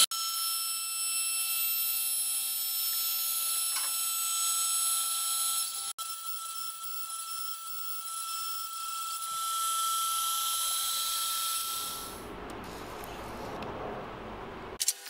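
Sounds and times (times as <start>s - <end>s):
router spindle whining: 0.0s - 12.2s.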